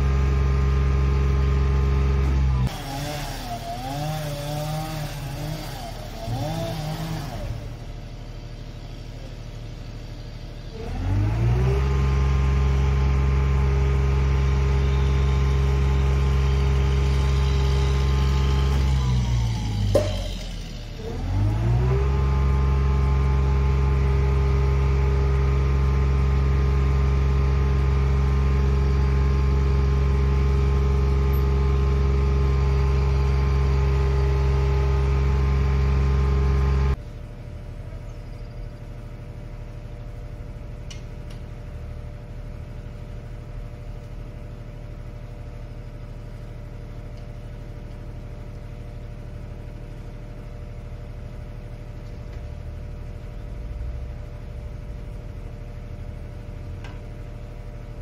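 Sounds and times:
boom lift engine revving: 0.0 - 37.0
click: 40.9 - 41.4.

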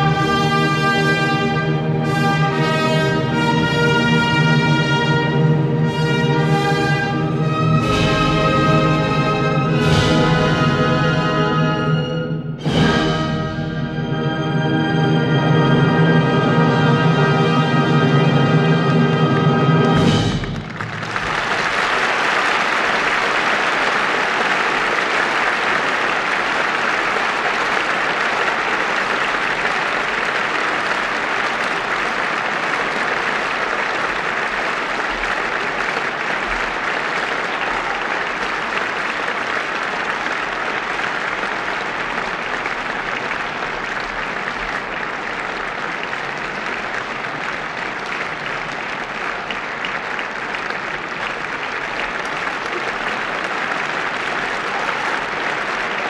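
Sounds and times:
audience applauding: 18.6 - 56.0.

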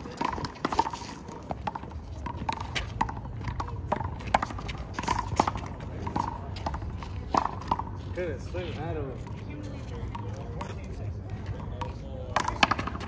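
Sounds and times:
handball slaps and bounces: 11.8 - 13.0.

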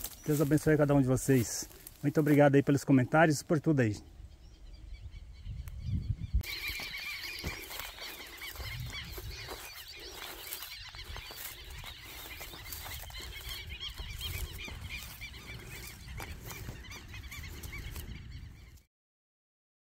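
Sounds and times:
flock of birds calling: 0.0 - 18.9
low wind rumble: 4.0 - 6.5.

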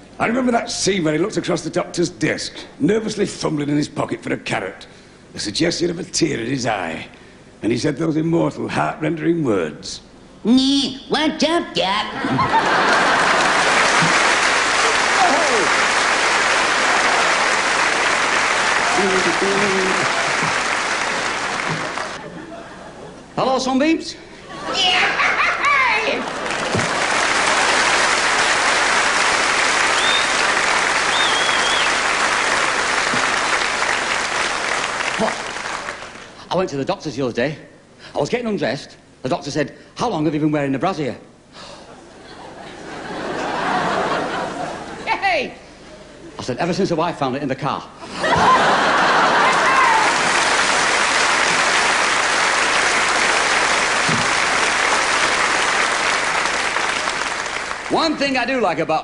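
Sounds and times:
audience applauding: 12.4 - 22.2, 26.0 - 36.4, 48.2 - 58.4
high wavering whistles: 29.9 - 30.4, 31.1 - 32.0.

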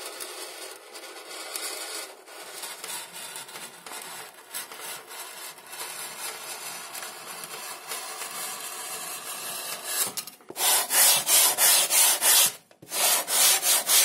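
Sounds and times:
knife scratching through foam: 7.5 - 14.0.

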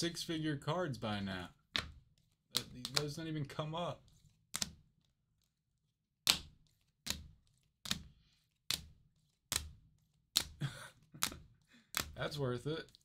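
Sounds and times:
trading cards clacking: 1.7 - 4.8, 6.3 - 13.0.

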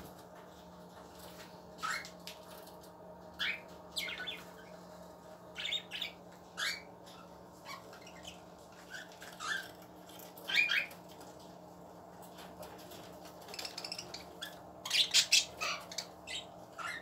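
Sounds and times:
faint steady hum: 0.0 - 17.0
budgerigars chirping and squawking: 1.8 - 2.2, 3.3 - 4.7, 5.5 - 11.2, 13.0 - 17.0.

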